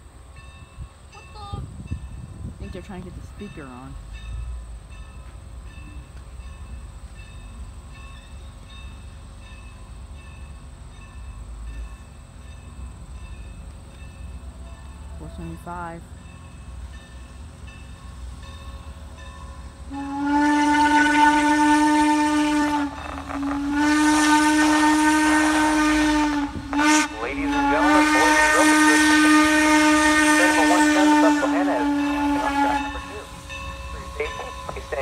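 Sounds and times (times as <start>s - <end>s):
low rumble of locomotive: 0.0s - 35.0s
steam locomotive whistle: 19.8s - 35.0s.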